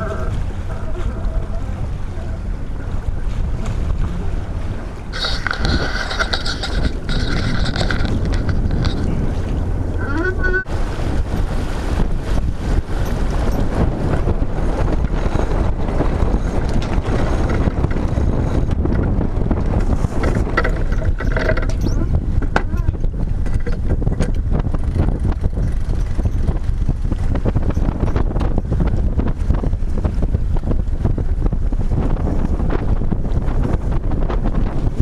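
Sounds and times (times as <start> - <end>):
water rushing along hull: 0.0 - 35.0
wind buffeting microphone: 0.0 - 35.0.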